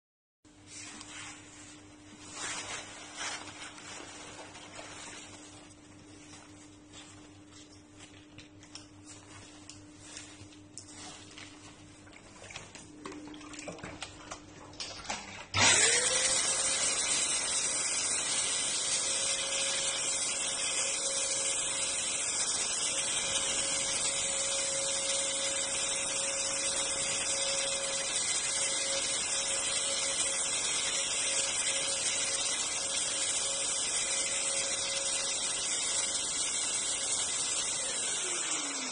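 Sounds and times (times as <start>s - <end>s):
sprayer blower motor whine: 15.6s - 38.9s.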